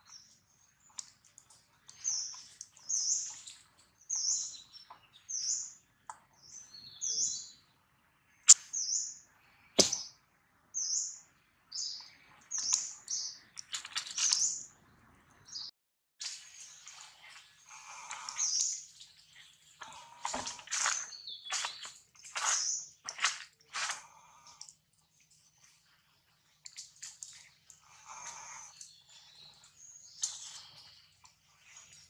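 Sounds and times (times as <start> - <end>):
small bird chirping: 0.0 - 7.7, 10.8 - 14.7, 16.3 - 24.8, 26.5 - 32.0.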